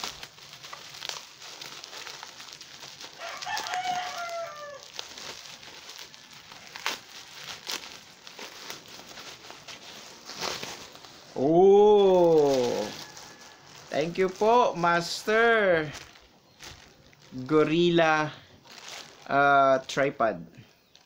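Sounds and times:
bubble wrap crinkling: 0.0 - 21.0
rooster crowing: 3.1 - 5.0, 12.4 - 14.1.

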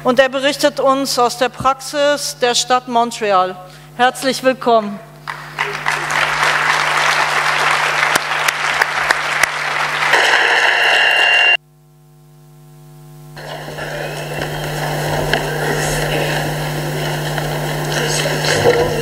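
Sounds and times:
audience applauding: 5.2 - 11.3, 13.4 - 19.0
faint hall noise: 13.4 - 19.0.

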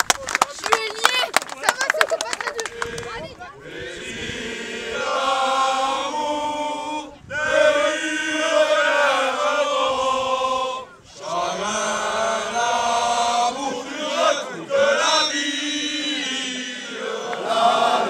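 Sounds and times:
men singing chant-like song: 3.6 - 18.0.

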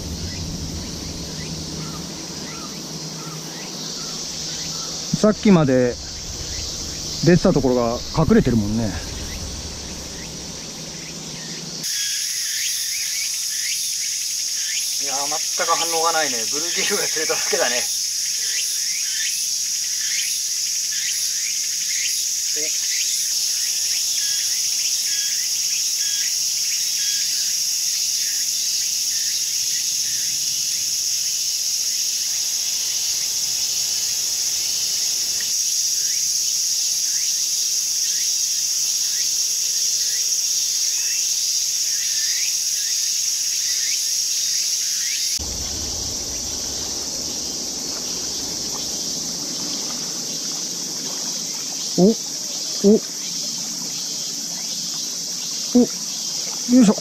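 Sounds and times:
low rushing noise: 0.0 - 11.8, 45.3 - 50.6
high-pitched insect chorus: 0.0 - 57.0.

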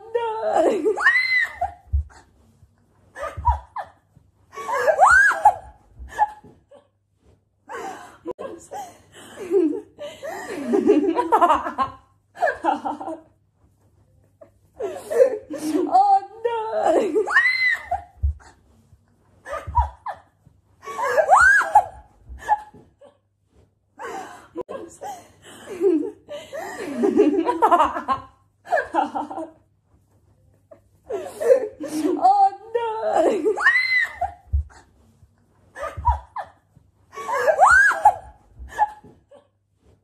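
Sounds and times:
woman laughing: 0.0 - 2.3, 3.2 - 4.0, 4.6 - 6.9, 8.2 - 13.3, 14.5 - 18.6, 19.5 - 20.3, 20.9 - 23.2, 24.6 - 29.6, 30.7 - 34.9, 35.8 - 39.5
women laughing and shrieking: 0.1 - 2.2, 4.6 - 6.6, 15.6 - 18.4, 20.8 - 22.8, 31.4 - 34.8, 37.2 - 39.2.

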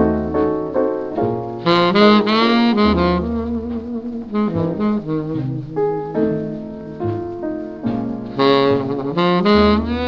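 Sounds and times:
double bass: 0.0 - 10.0
piano: 0.0 - 10.0
tenor saxophone: 1.6 - 6.1, 8.3 - 10.0.

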